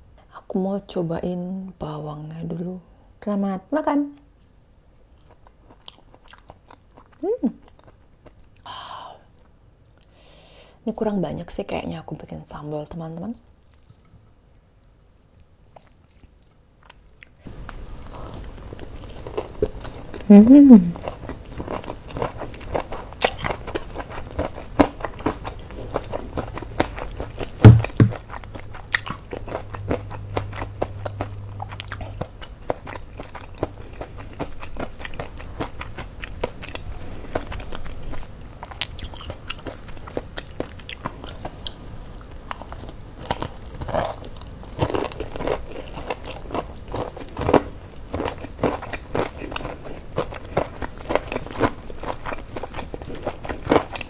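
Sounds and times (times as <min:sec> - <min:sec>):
chewing crunchy fried chicken: 0:05.0 - 0:10.2, 0:13.6 - 0:20.3, 0:21.0 - 0:54.0
loud low thump: 0:27.6 - 0:28.2.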